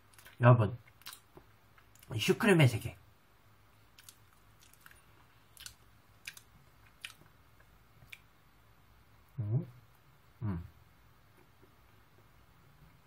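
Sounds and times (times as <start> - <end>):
faint chewing mouth clicks: 0.0 - 2.1, 3.9 - 8.3.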